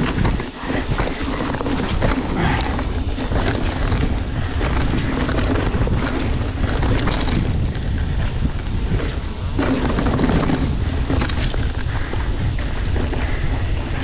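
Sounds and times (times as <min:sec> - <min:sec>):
bike rattling and clicking: 0:00.0 - 0:14.0
tyres rumbling on dirt trail: 0:00.0 - 0:14.0
wind buffeting microphone: 0:00.0 - 0:14.0.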